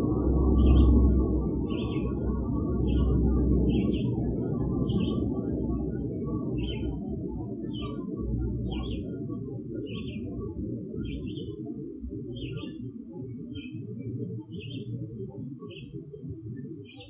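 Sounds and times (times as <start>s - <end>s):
loud low rumble: 0.0s - 6.6s.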